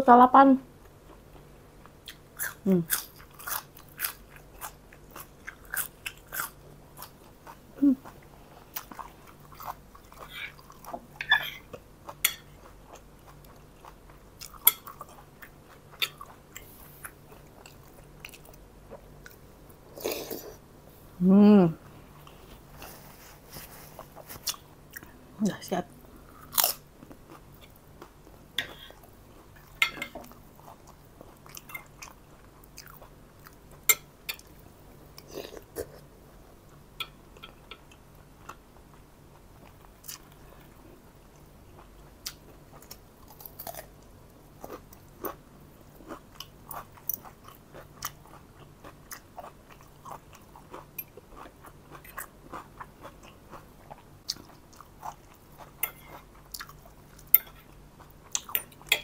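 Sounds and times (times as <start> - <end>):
chewing and biting food: 46.0 - 58.9
cutlery clicking against plate: 57.4 - 57.6.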